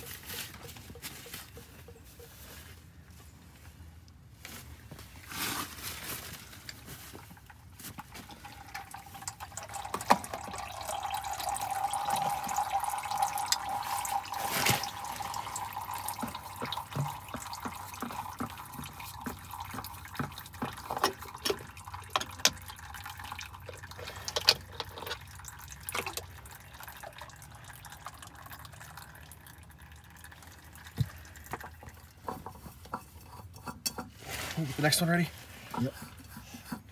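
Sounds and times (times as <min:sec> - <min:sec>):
drips and small splashes: 0:06.6 - 0:33.0
fluid pouring into a plastic tub: 0:07.2 - 0:32.8.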